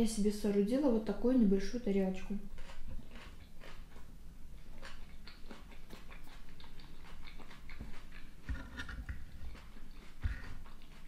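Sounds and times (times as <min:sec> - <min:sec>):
close chewing with wet mouth clicks: 0:02.5 - 0:11.0.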